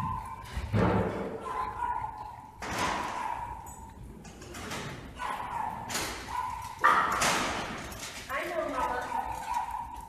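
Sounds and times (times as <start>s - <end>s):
dogs barking: 0.0s - 4.2s, 4.8s - 7.9s, 8.6s - 10.0s.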